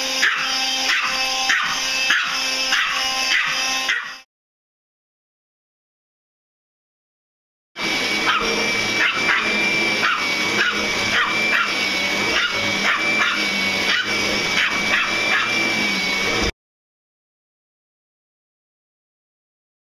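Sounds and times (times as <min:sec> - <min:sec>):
vacuum cleaner motor whine: 0:00.0 - 0:04.2, 0:07.8 - 0:16.6
dog barking: 0:00.2 - 0:04.2, 0:08.2 - 0:15.7.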